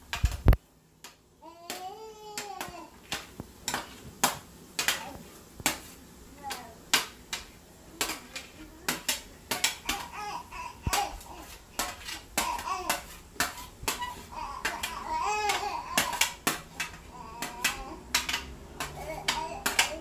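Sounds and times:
metal spoon tapping and scraping: 0.1 - 6.0, 6.9 - 10.2, 10.8 - 20.0
child babbling and crying out: 14.0 - 16.4, 19.0 - 20.0.

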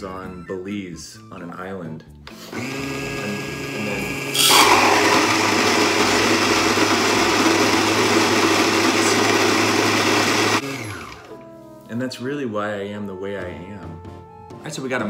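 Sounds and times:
coffee grinder grinding beans: 2.5 - 11.3
grinder motor hum: 2.5 - 11.3.

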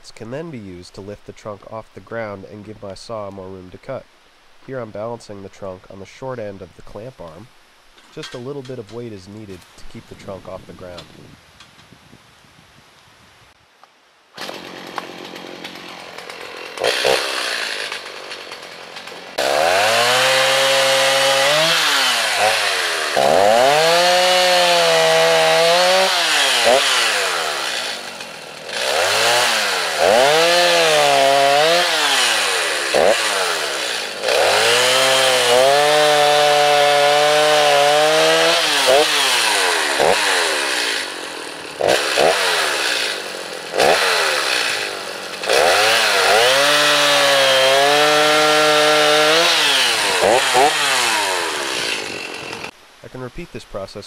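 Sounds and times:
chainsaw cutting log: 14.4 - 52.8.

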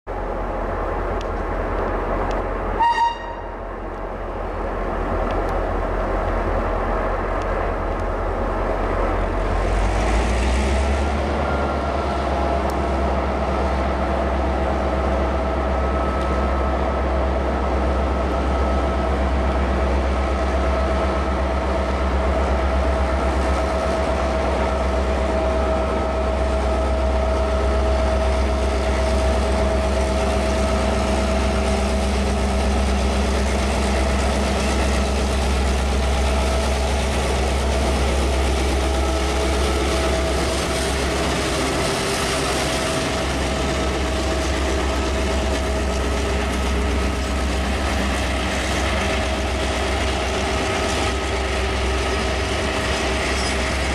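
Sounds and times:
locomotive horn toot: 2.8 - 3.6
locomotive diesel engine throttling up: 24.2 - 53.9.

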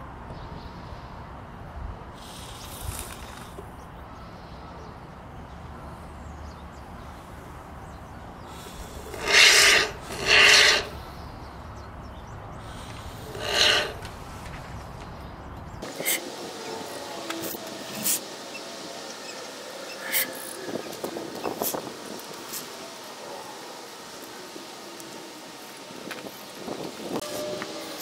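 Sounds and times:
plastic pipe scraping on table: 13.3 - 14.1.

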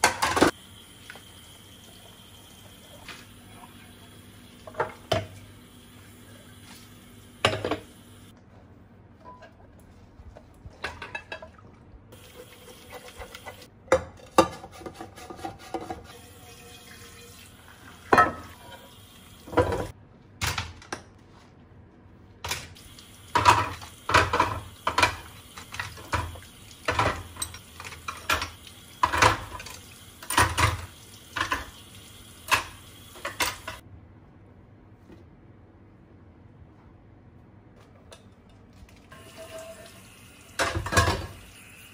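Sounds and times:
water running and splashing: 22.8 - 33.8.

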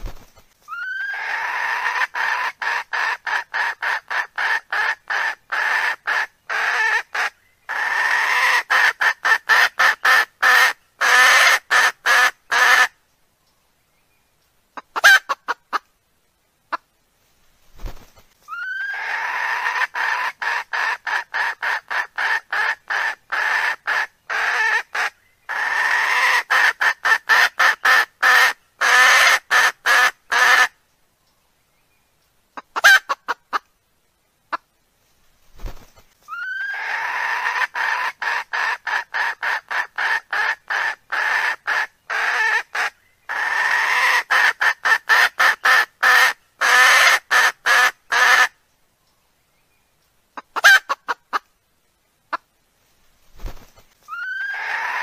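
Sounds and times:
recorded fowl clucking: 0.7 - 12.9, 14.8 - 15.9, 18.5 - 30.8, 32.6 - 33.7, 36.3 - 48.6, 50.4 - 51.5.

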